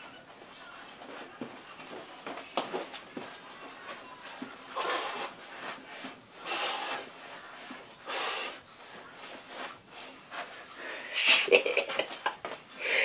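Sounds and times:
man huffing breaths: 0:12.8 - 0:13.0.

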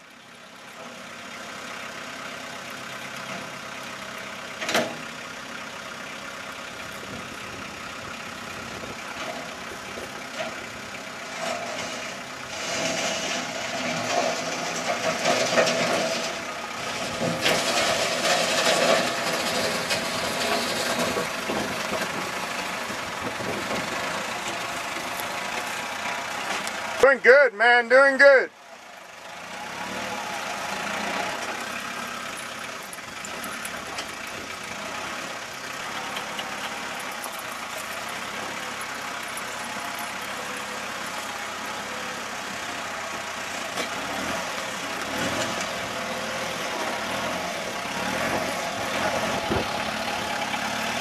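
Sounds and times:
tractor engine running: 0:00.0 - 0:51.0.

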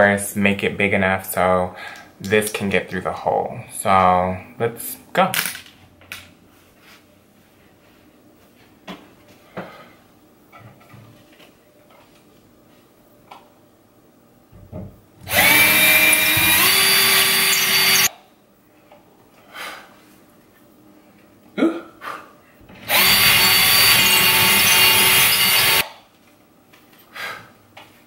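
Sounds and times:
cordless drill whining: 0:15.3 - 0:18.1, 0:22.8 - 0:25.8.

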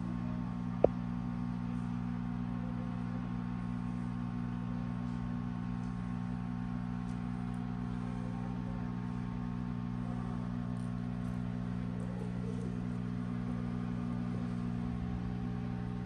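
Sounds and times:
low electric hum: 0:00.0 - 0:16.0.

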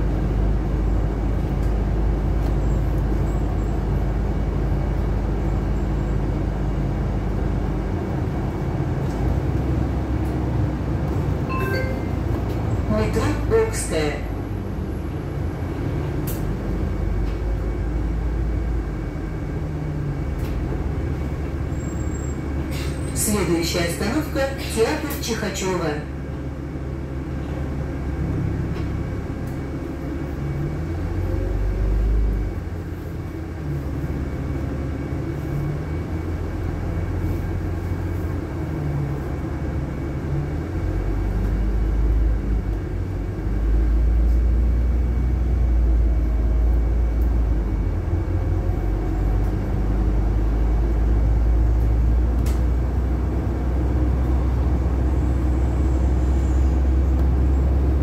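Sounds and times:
bus engine and road rumble: 0:00.0 - 0:58.0.

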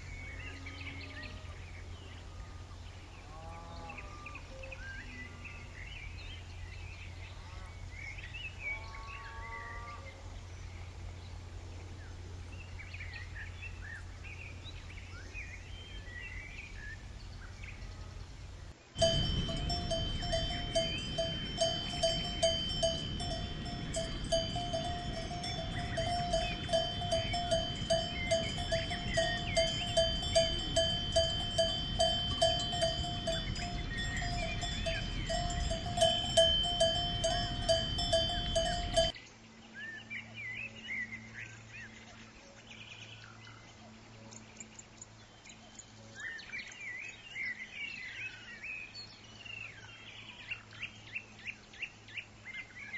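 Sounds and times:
low steady hum: 0:00.0 - 0:39.2
faint chirps: 0:19.0 - 0:39.1
cow bell clanking: 0:19.0 - 0:39.2.

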